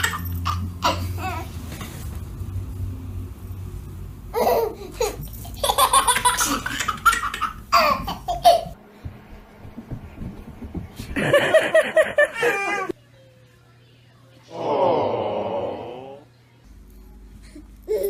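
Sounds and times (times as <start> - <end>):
baby laughing: 0.0 - 1.5, 4.3 - 8.8, 11.7 - 12.9.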